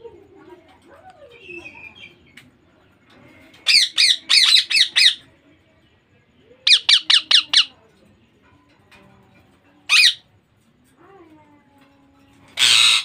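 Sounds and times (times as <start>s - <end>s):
parakeet calling: 3.6s - 5.3s, 6.6s - 7.7s, 9.9s - 10.2s, 12.6s - 13.0s.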